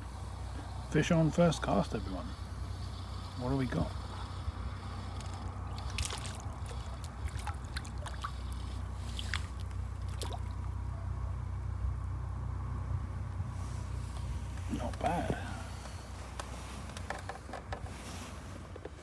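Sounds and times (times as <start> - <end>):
low steady rumble: 0.0 - 19.0
handling clicks and ticks: 1.6 - 9.8
water splashing and trickling: 5.7 - 10.8.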